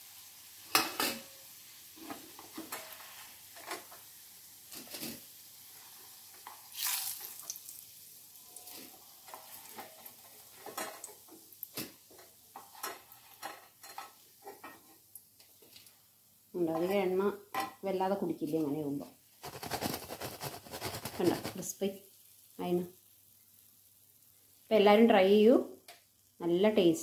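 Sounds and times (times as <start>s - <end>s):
patties sizzling in oil: 0.0s - 27.0s
spatula scraping pan: 8.7s - 11.2s, 12.1s - 15.0s.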